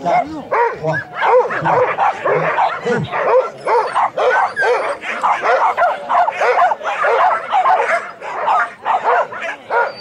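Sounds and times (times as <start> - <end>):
dog barking rapidly: 0.0 - 10.0.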